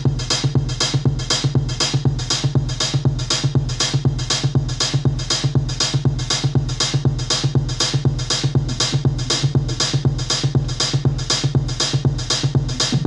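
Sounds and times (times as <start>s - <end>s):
drum machine beat with hi-hats: 0.0s - 13.0s
synth bassline: 12.1s - 13.0s.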